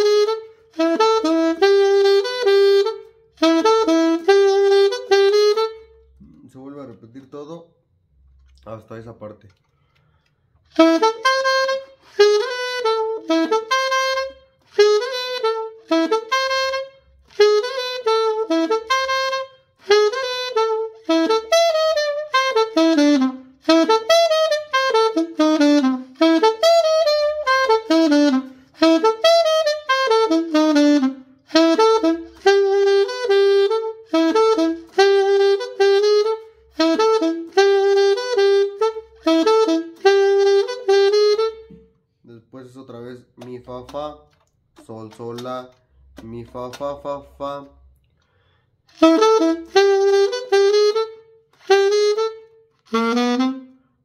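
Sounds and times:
solo saxophone melody: 0:00.0 - 0:07.0, 0:10.6 - 0:42.1, 0:48.8 - 0:54.0
player breathing: 0:09.6 - 0:10.6, 0:48.2 - 0:48.8.

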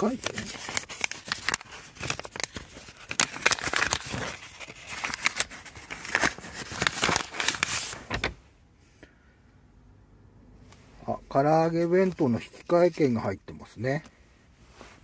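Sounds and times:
paper envelope rustling: 0:00.0 - 0:08.4.

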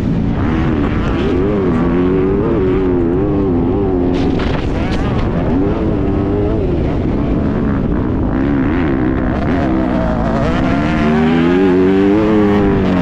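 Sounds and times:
motocross bike engine revving: 0:00.0 - 0:13.0
wind rumble on microphone: 0:00.0 - 0:13.0.

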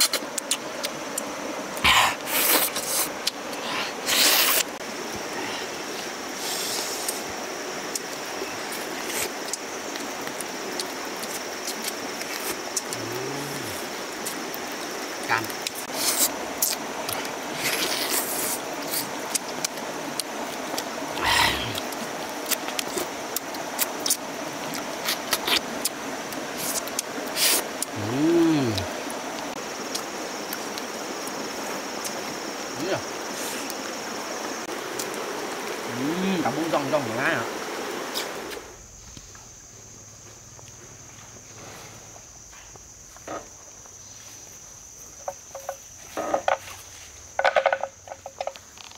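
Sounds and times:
lip smacks and mouth clicks: 0:00.0 - 0:01.3
high insect drone: 0:00.0 - 0:48.9
man humming: 0:12.8 - 0:13.9, 0:27.9 - 0:29.0, 0:35.9 - 0:36.6.

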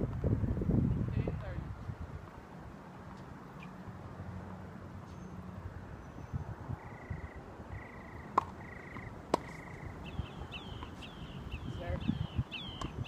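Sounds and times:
tennis ball hitting hard court: 0:08.3 - 0:09.8, 0:12.7 - 0:13.0.

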